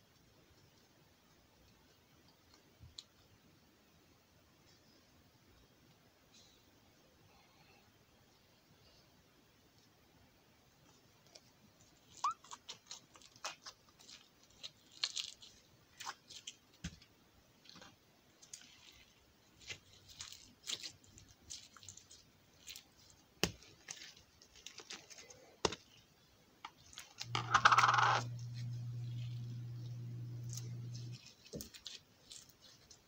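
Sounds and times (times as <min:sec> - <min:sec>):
steady low hum: 0:27.2 - 0:31.4.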